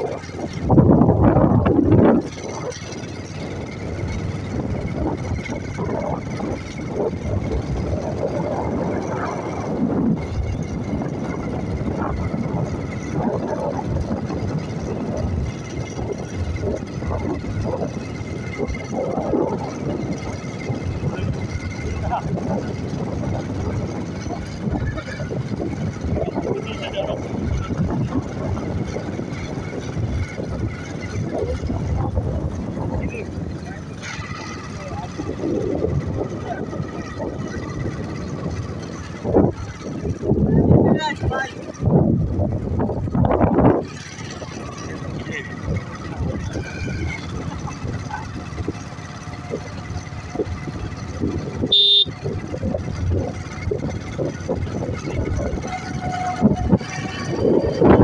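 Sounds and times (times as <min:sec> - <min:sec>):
wind buffeting microphone: 0:00.0 - 0:58.0
short high beep: 0:51.7 - 0:52.1.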